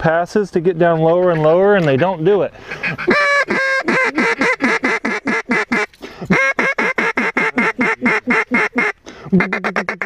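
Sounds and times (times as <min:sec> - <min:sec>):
duck call quacks: 0:02.7 - 0:10.0.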